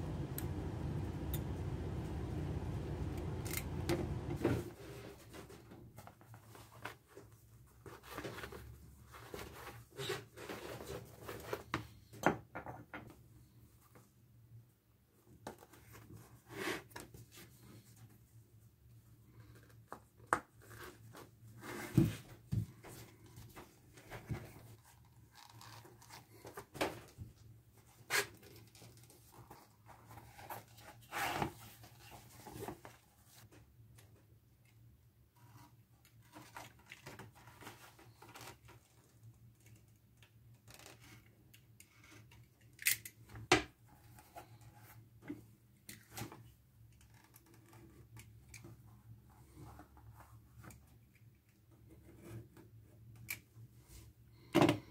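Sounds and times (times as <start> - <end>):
low steady hum: 0.0 - 4.6.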